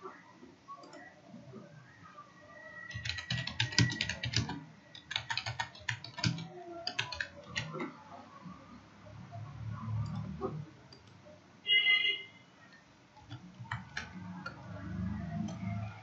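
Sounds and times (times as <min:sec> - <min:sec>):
computer keyboard typing: 0:02.9 - 0:07.9, 0:12.7 - 0:16.0.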